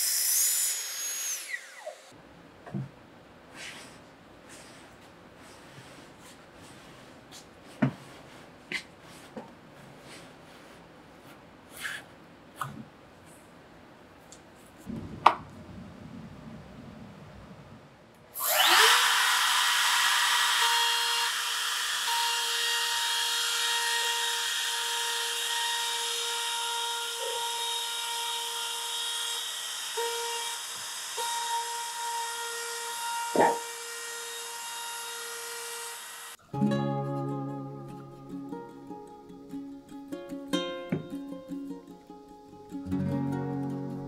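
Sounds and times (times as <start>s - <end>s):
trim router whining: 18.4s - 36.4s.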